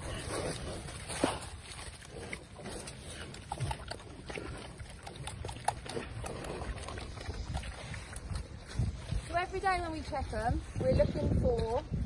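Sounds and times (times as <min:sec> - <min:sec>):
pigs grunting: 0:00.0 - 0:08.4.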